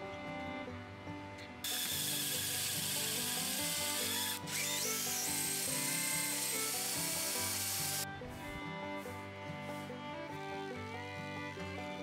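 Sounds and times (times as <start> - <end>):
power drill boring wood: 1.6 - 8.0.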